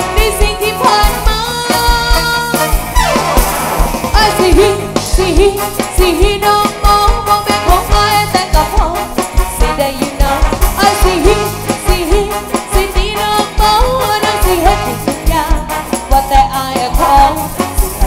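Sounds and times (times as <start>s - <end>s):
woman singing: 0.0s - 2.8s, 4.1s - 18.0s
live band playing amplified music: 0.0s - 18.0s
drum beat: 1.8s - 9.7s.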